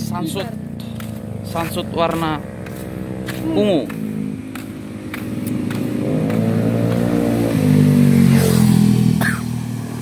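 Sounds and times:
motorbike engine running steadily: 0.0s - 10.0s
motorbike passing close: 0.0s - 10.0s.

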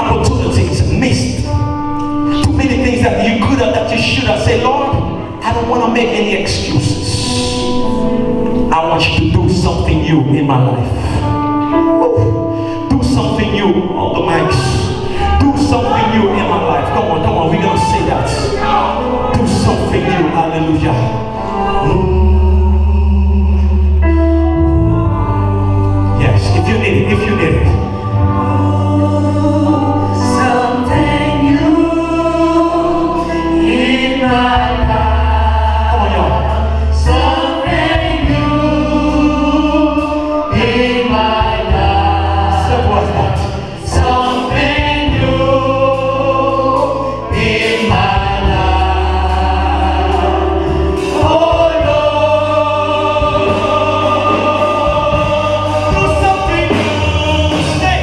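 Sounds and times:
sustained bass notes: 0.0s - 58.0s
choir singing over a band: 13.1s - 58.0s.

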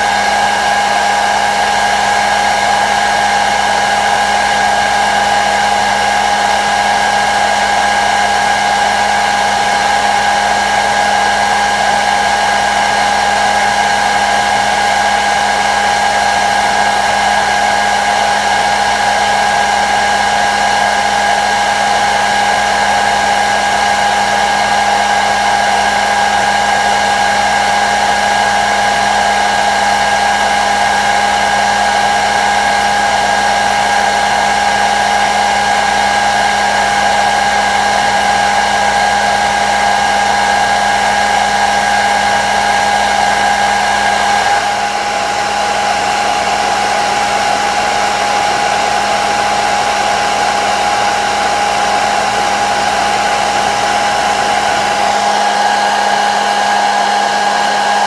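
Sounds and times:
hair dryer running: 0.0s - 58.0s.

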